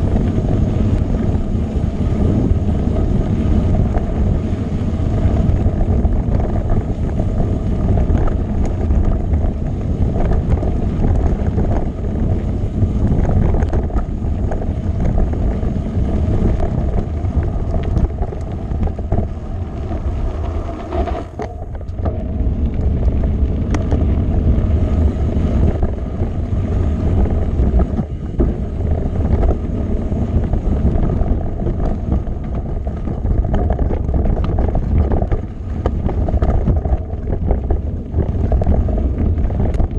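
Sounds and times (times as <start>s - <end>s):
bike knocking and rattling: 0.0s - 39.9s
bike tyres rumbling on stones: 0.0s - 39.9s
wind on microphone: 0.0s - 39.9s.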